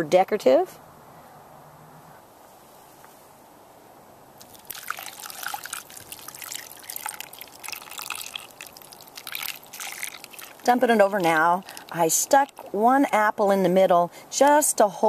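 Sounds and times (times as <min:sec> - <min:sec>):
syrup pouring and splattering: 0:04.4 - 0:12.8.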